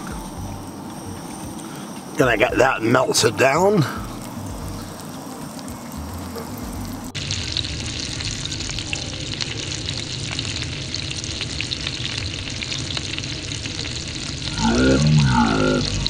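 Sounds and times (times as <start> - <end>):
butter sizzling in a frying pan: 0.0 - 16.0.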